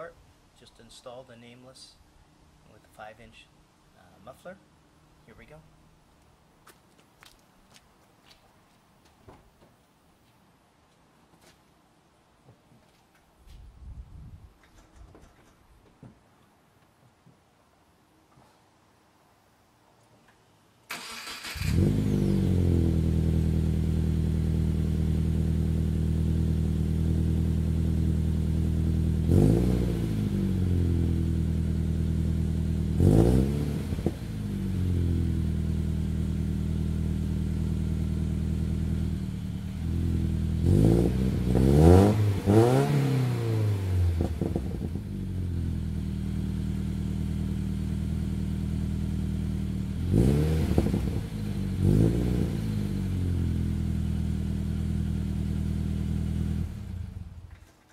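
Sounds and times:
engine revving: 20.9 - 27.1, 29.1 - 31.2, 32.6 - 35.3, 39.8 - 45.6, 49.9 - 57.3
car engine starting and idling: 20.9 - 41.6.

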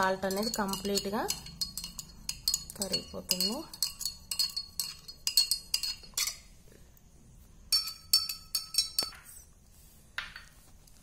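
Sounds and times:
spoon clinking in glass: 0.0 - 6.5, 7.7 - 9.4.

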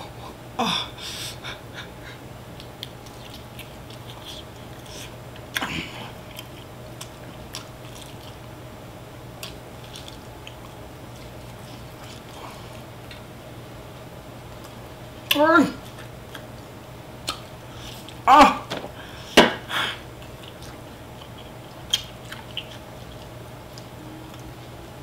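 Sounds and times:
steady low hum: 0.0 - 25.0
person chewing and biting chicken: 6.2 - 8.5, 20.2 - 24.5.

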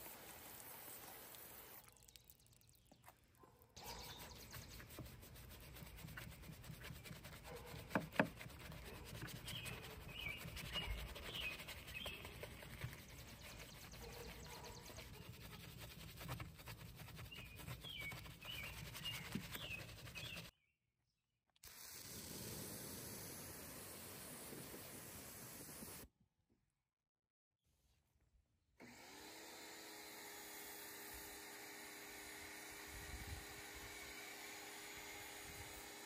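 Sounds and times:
brush scrubbing wet metal: 0.0 - 20.5.

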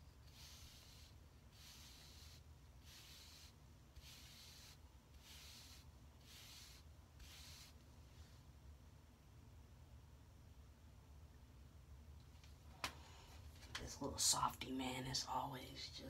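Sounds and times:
brush swishing over hair: 0.0 - 8.4.

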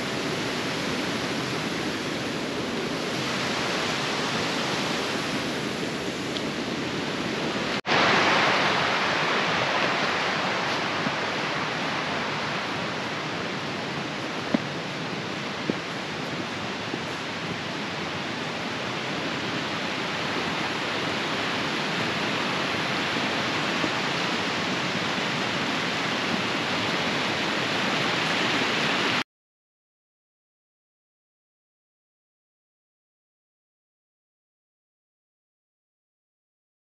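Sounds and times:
water rushing: 0.0 - 29.2.

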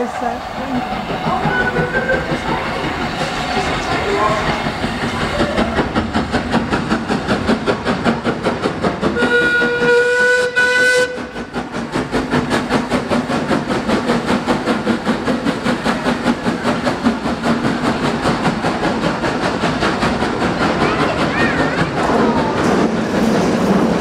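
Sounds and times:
steam locomotive chuffing: 0.0 - 24.0
steam whistle: 9.2 - 11.3.

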